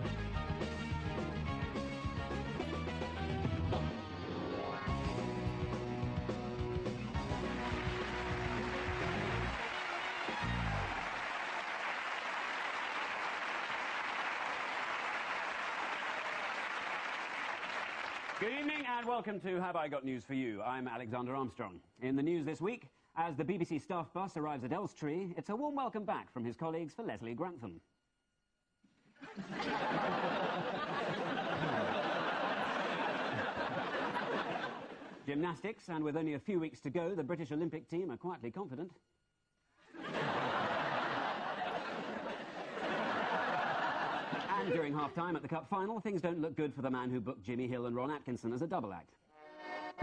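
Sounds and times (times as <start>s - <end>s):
audience applauding: 7.0s - 19.1s, 29.6s - 35.1s, 40.2s - 45.2s.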